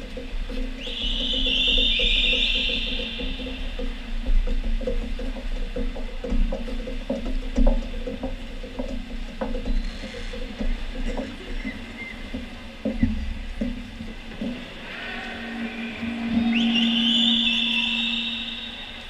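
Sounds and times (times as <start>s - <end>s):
steady low hum: 12.4s - 19.0s
spectator noise echoing: 14.6s - 19.0s.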